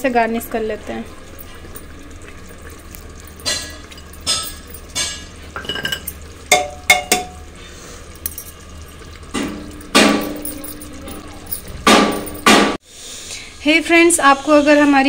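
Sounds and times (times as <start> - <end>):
metal ladle knocking on pot: 3.4 - 7.4.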